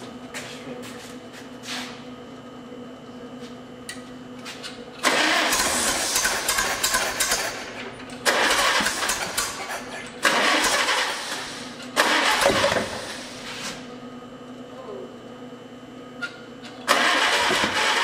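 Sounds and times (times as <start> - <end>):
tractor engine cranking and firing: 5.0 - 13.2, 16.7 - 18.0.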